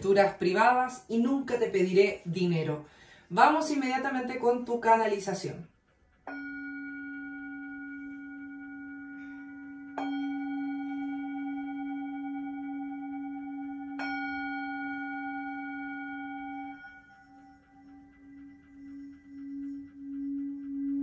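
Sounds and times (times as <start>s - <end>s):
metal singing bowl ringing: 6.3s - 21.0s.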